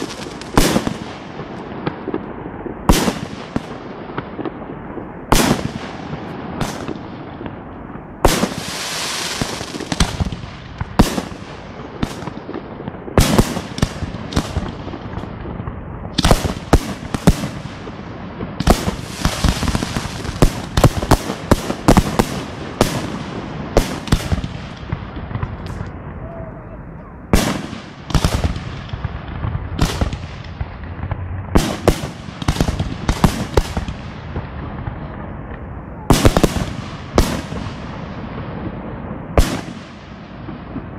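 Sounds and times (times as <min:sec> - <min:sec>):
firework hissing: 0:08.3 - 0:10.2, 0:18.7 - 0:22.4.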